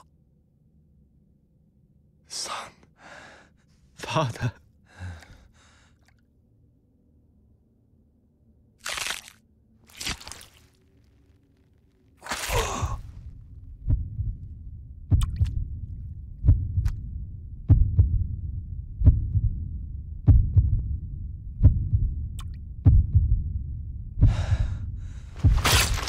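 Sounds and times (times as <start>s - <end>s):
deep heartbeat thumps: 13.0s - 26.0s
breath-like rush: 24.2s - 25.6s.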